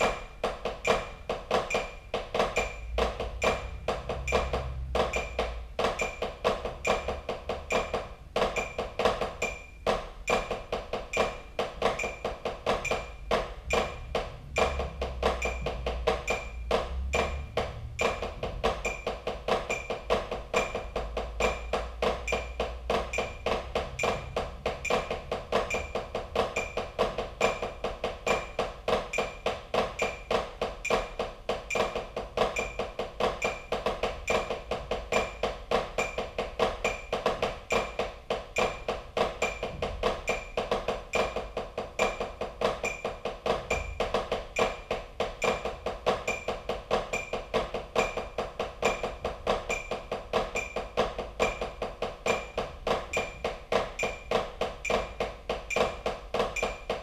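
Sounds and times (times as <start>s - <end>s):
steady high click: 0.0s - 14.0s
drumsticks on practice pad: 0.0s - 57.0s.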